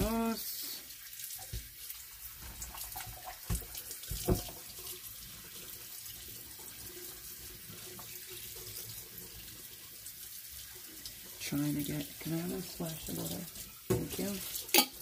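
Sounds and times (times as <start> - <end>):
low watery hiss: 0.0 - 4.8, 9.8 - 15.0.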